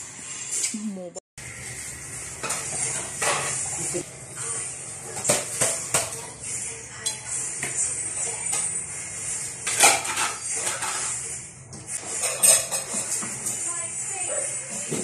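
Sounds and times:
metal utensil clinking on pot: 12.2 - 13.2.

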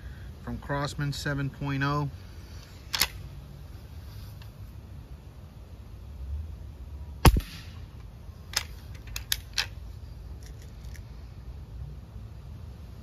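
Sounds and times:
air rifle shot: 7.2 - 7.9.

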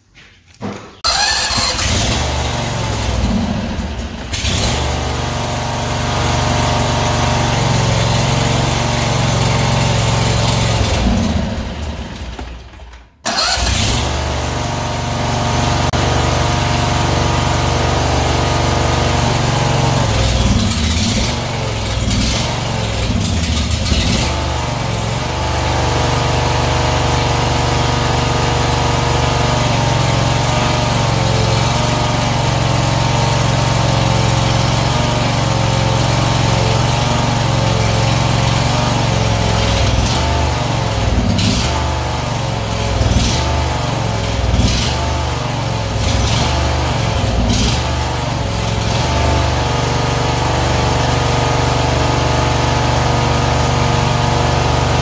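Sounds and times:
engine idling: 1.0 - 12.4.

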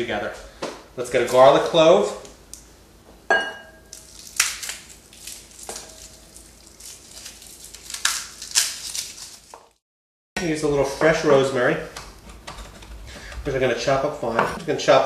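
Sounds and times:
garlic skin crackling: 3.9 - 9.8.

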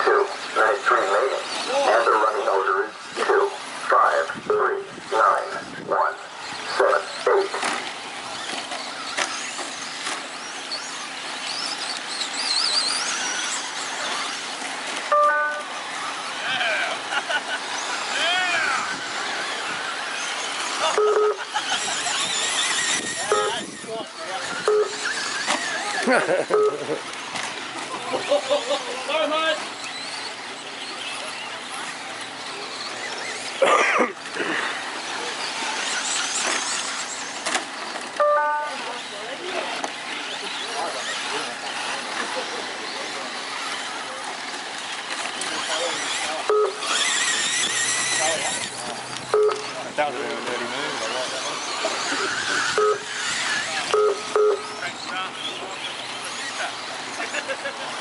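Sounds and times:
high motor whine: 0.0 - 58.0
rc trucks racing: 0.0 - 58.0
two-note beep: 15.1 - 15.6, 38.2 - 38.7, 49.3 - 49.6, 53.9 - 54.6.

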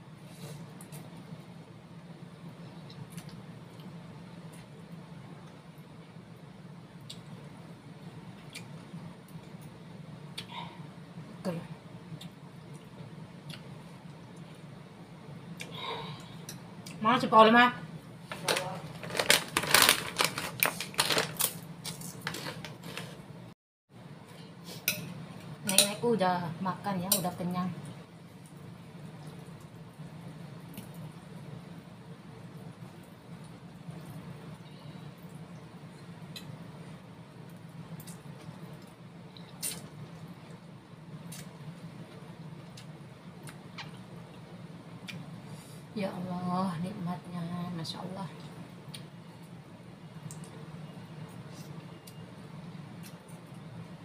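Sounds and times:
steady low hum: 0.0 - 54.0
plastic bag crinkling: 18.3 - 23.2.

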